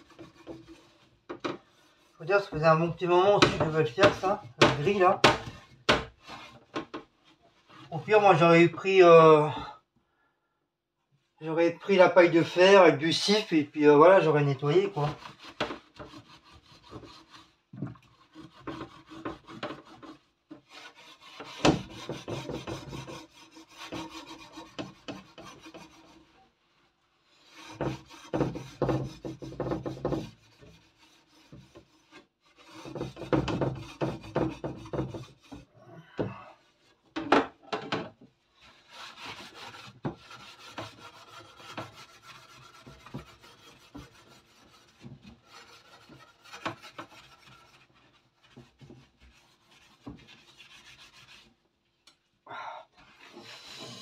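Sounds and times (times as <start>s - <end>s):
sponge scrubbing metal rack: 1.9s - 5.2s, 38.6s - 51.4s.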